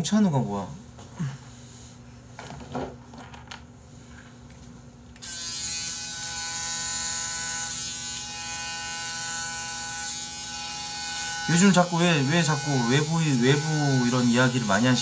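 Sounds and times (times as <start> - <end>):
electric shaver buzzing: 5.2 - 15.0.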